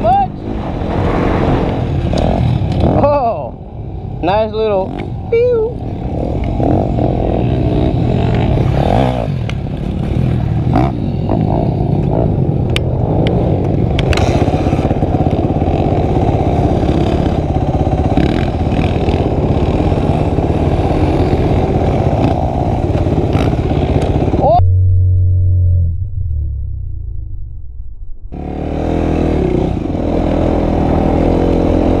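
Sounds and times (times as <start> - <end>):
motorcycle engine running: 5.5 - 27.6.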